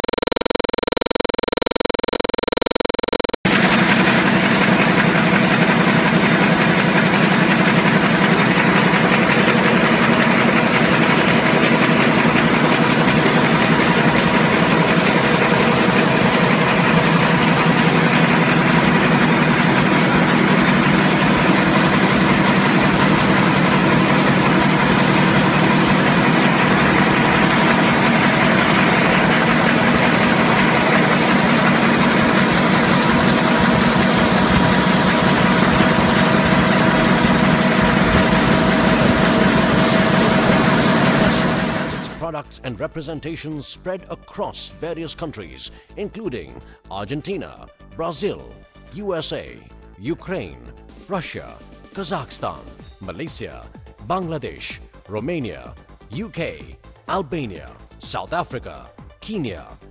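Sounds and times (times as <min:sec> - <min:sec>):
printing press clatter and hum: 0:03.0 - 0:42.2
steady drone: 0:03.5 - 0:42.2.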